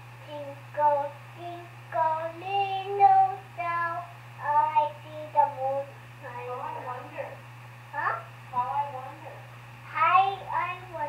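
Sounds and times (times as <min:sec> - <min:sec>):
low hum from monitor: 0:00.0 - 0:11.0
child singing through baby monitor: 0:00.2 - 0:07.4, 0:09.9 - 0:11.0.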